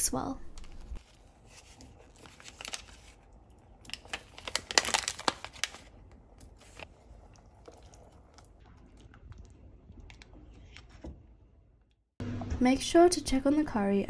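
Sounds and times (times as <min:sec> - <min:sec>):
plastic tray crinkling: 0:03.9 - 0:05.9.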